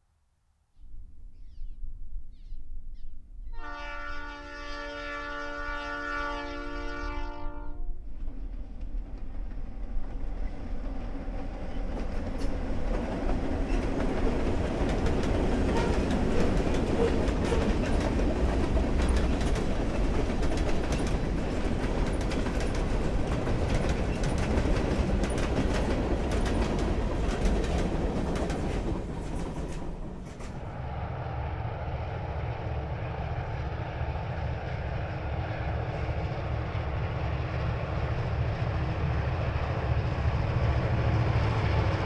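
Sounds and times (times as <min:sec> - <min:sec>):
train horn: 0:03.5 - 0:08.0, 0:15.7 - 0:16.1
train wheels clicking over rail joints: 0:08.8 - 0:30.7.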